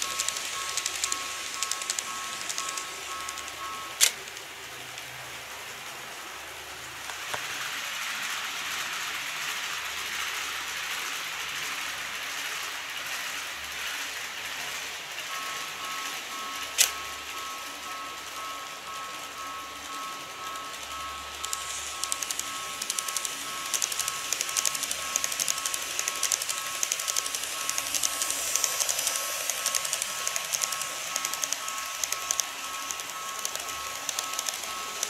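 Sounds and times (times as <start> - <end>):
level crossing warning bell: 0.0 - 7.8, 8.4 - 35.0
model train running on track: 0.0 - 35.0
sharp click: 0.2 - 4.4, 16.8 - 17.0.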